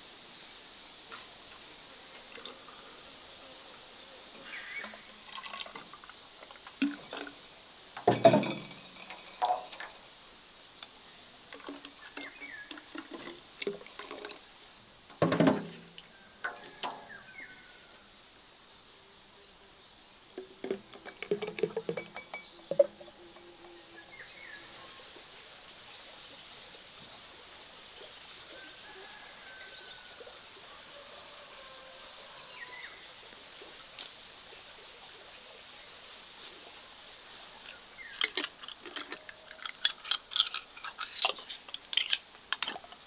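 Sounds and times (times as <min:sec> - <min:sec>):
liquid being poured: 0:04.9 - 0:07.4, 0:08.0 - 0:10.1, 0:11.5 - 0:17.2, 0:20.3 - 0:24.9, 0:37.6 - 0:43.0
glass clinking: 0:08.1 - 0:10.0, 0:20.4 - 0:24.3
small clatters: 0:37.6 - 0:43.0.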